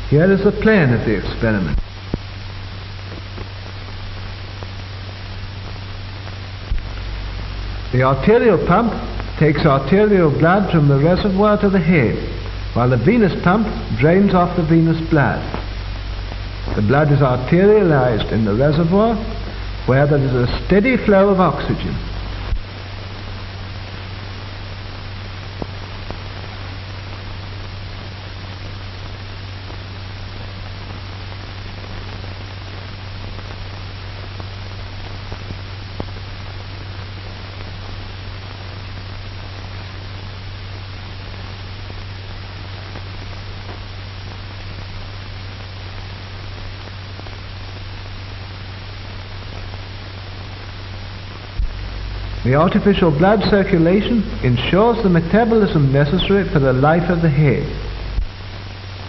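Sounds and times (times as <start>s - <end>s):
low hum: 0.0s - 44.9s, 45.6s - 59.0s
film soundtrack hiss: 0.0s - 59.0s.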